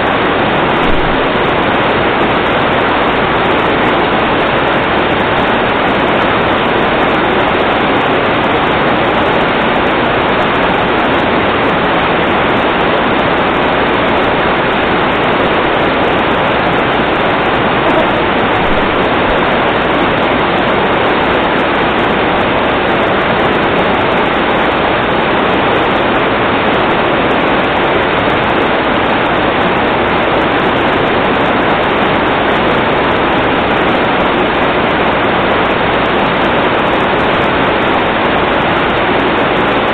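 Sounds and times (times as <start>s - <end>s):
water rushing: 0.0s - 39.9s.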